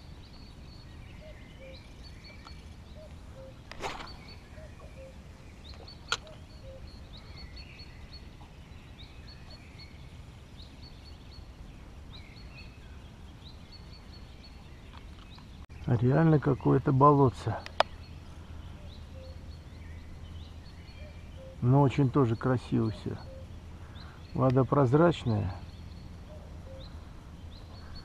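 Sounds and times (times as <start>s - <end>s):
low steady background noise: 0.0s - 28.0s
small birds chirping: 0.0s - 28.0s
fishing rod cast swish: 3.7s - 4.4s.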